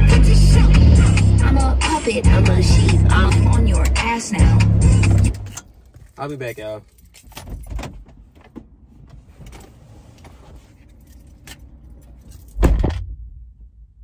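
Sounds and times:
car door shutting: 12.6 - 13.1.

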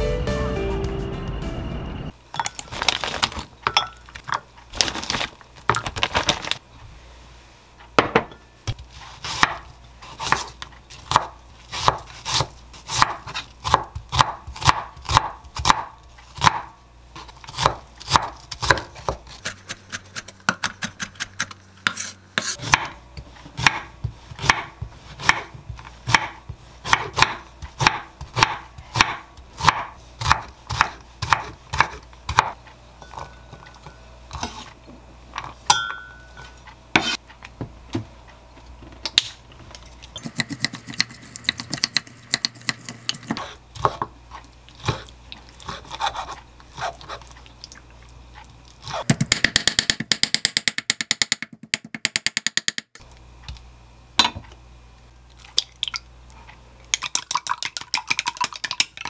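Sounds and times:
knife chopping on wooden board: 9.3 - 9.6, 11.1 - 16.7, 17.5 - 19.7, 20.5 - 23.0, 23.6 - 32.6.

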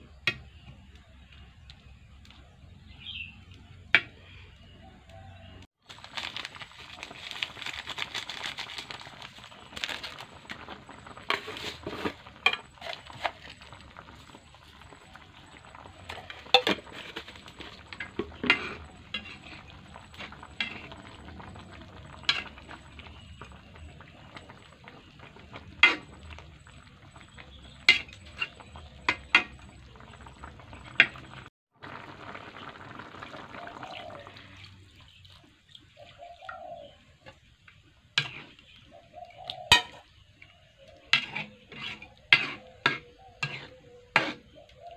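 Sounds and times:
broth simmering: 0.0 - 44.9
ladle scraping a pan: 10.9 - 15.0, 15.7 - 21.0, 38.2 - 38.7, 41.0 - 44.6.

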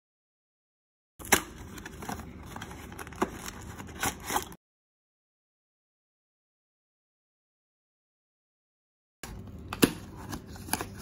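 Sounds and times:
cardboard packaging rustling: 1.2 - 4.6.

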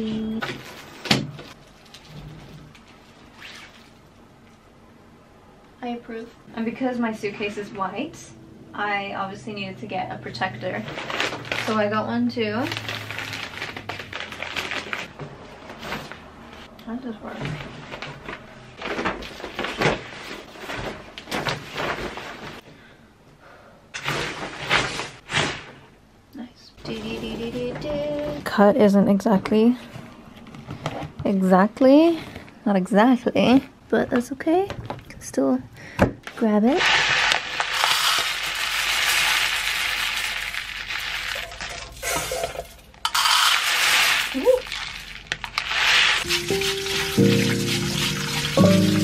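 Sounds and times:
plastic cover crinkling and rustling: 0.0 - 4.0, 10.7 - 22.6, 36.7 - 49.0
rice pouring into plastic cup: 36.8 - 42.4, 43.1 - 49.0.

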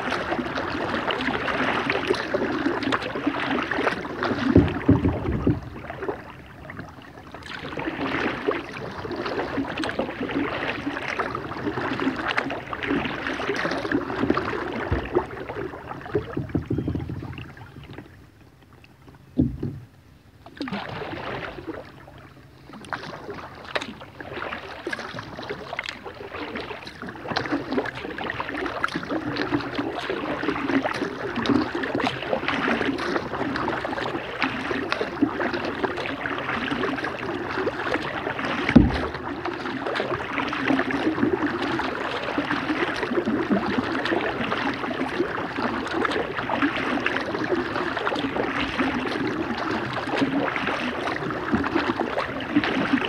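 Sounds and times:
kayak paddle splashing: 0.0 - 53.0
water running off paddle: 0.0 - 53.0
low thumps: 4.5 - 5.9, 16.2 - 18.1, 19.3 - 20.0, 38.6 - 39.3.

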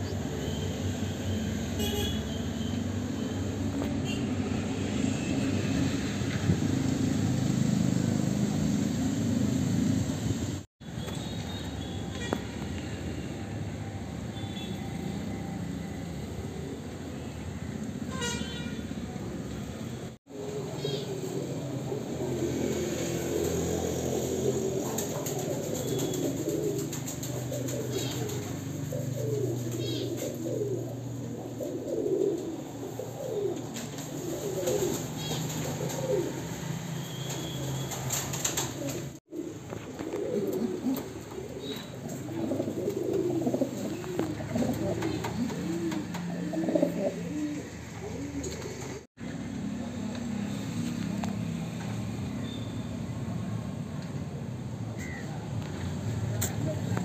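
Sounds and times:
pigeons cooing: 20.3 - 49.1.

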